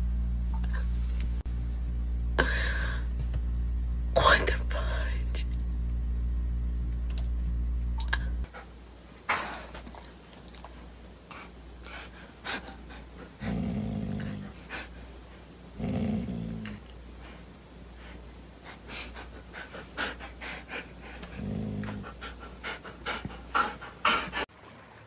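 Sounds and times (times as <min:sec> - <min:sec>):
dog growling low: 0:13.3 - 0:14.9, 0:15.8 - 0:16.9, 0:20.0 - 0:24.5.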